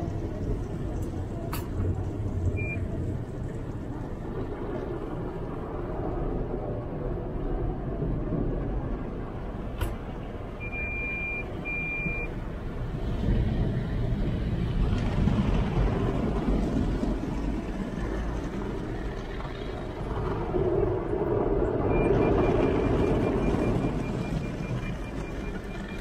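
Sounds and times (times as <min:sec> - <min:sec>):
water spraying on car: 0:00.0 - 0:08.2, 0:09.3 - 0:26.0
short beeps: 0:02.6 - 0:02.8, 0:10.6 - 0:12.3, 0:21.9 - 0:26.0
faint quick beeps: 0:10.6 - 0:12.3.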